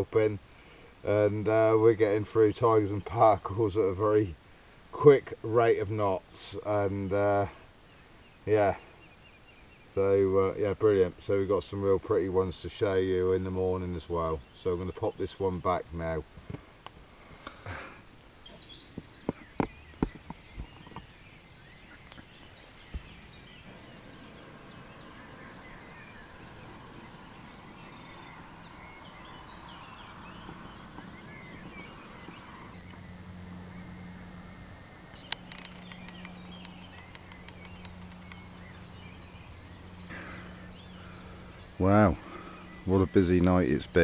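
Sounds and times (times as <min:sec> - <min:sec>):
birds singing: 0:00.0 - 0:44.0
soft outdoor hiss: 0:00.0 - 0:44.0
steady low hum: 0:21.2 - 0:44.0.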